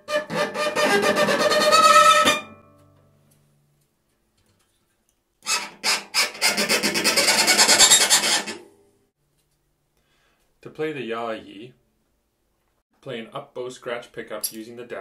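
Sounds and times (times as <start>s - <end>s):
cello scratch tone bow strokes: 0.0s - 2.5s, 5.5s - 8.7s.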